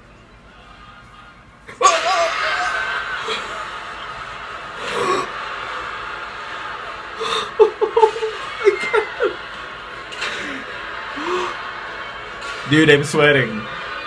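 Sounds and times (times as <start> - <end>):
man laughing nervously: 7.2 - 9.4.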